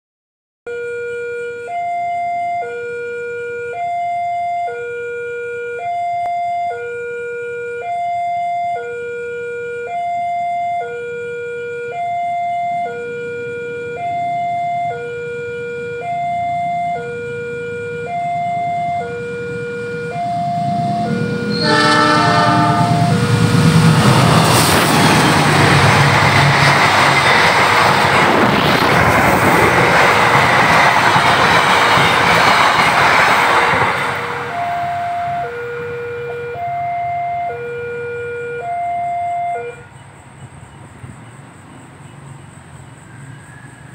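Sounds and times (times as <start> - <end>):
level crossing alarm: 0.7 - 25.3, 33.8 - 40.0
train rushing past: 18.4 - 36.5
train horn: 19.0 - 25.3, 33.9 - 39.9.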